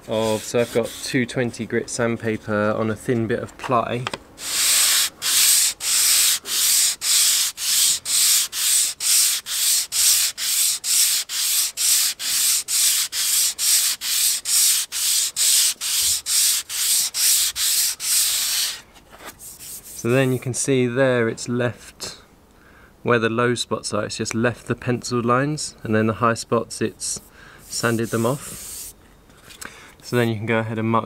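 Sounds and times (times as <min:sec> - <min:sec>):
sandpaper rasping on wood: 0:00.0 - 0:01.2, 0:04.4 - 0:18.8, 0:27.7 - 0:28.9.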